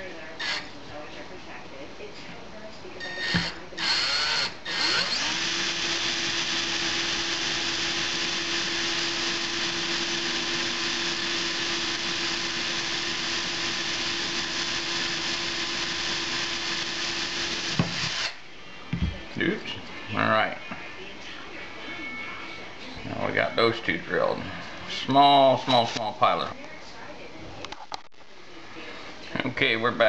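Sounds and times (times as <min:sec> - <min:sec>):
cordless drill drilling: 0:00.4 - 0:00.7, 0:03.0 - 0:18.4.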